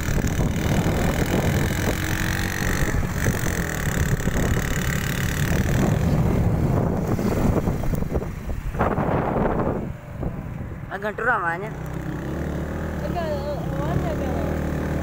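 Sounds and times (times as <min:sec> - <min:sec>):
wind on microphone: 0:00.0 - 0:10.9
vehicle road and engine noise: 0:00.0 - 0:15.0.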